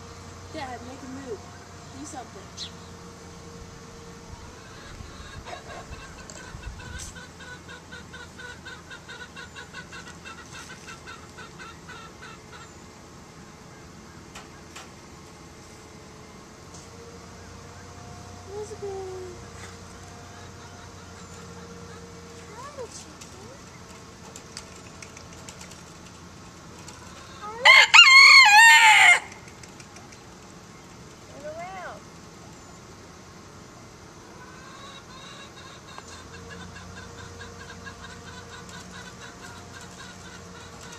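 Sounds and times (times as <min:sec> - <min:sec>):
chicken clucking: 0:04.6 - 0:12.7, 0:34.4 - 0:40.9
rooster crowing: 0:27.3 - 0:29.4.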